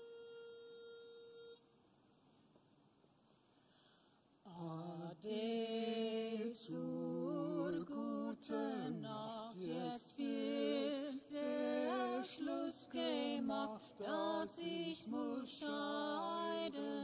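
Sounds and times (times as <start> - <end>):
man and woman singing unaccompanied: 4.4 - 17.0.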